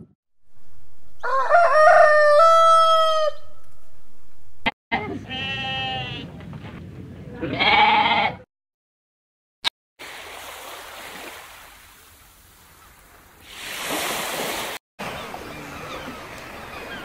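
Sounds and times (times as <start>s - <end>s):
goat bleating: 5.0s - 6.3s, 7.4s - 8.4s
surf washing on sandy beach: 13.4s - 16.6s.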